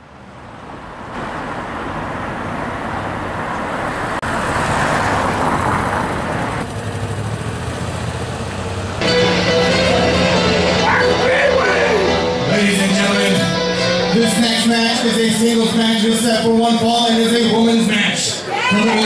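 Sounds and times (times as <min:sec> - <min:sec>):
cars driving road noise: 0:00.0 - 0:19.0
music: 0:09.0 - 0:16.2.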